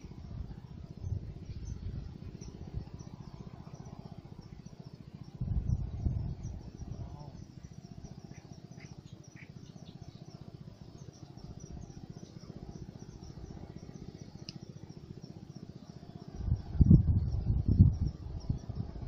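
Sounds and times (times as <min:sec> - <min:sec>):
fast low pulsing: 0:00.0 - 0:19.0
small birds chirping: 0:00.0 - 0:19.0.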